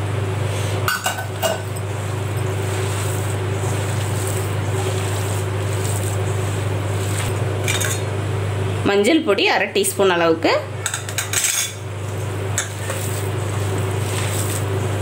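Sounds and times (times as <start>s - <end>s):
low mechanical hum: 0.0s - 15.0s
hands mashing soaked rice: 2.1s - 7.4s, 12.7s - 15.0s.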